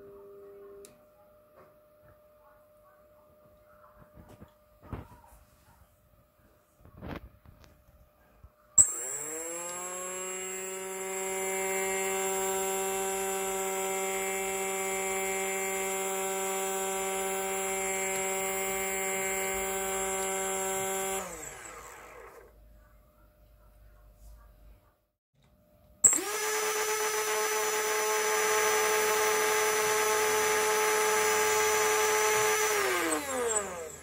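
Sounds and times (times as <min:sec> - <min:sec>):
electric motor whine: 0:08.8 - 0:22.6, 0:26.0 - 0:34.0.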